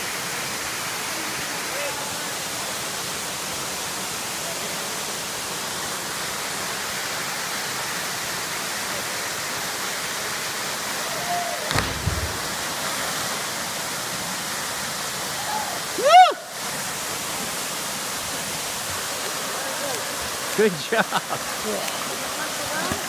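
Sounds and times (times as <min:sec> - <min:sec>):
waterfalls rushing: 0:00.0 - 0:23.0
person splashing into water: 0:11.7 - 0:13.2.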